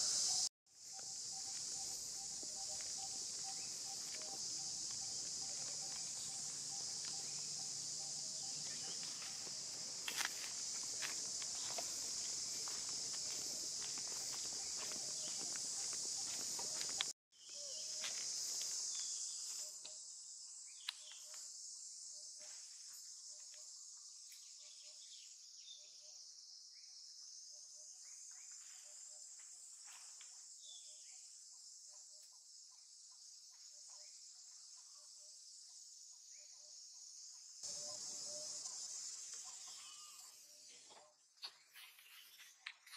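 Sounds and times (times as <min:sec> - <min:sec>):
insects droning: 0:00.0 - 0:42.9.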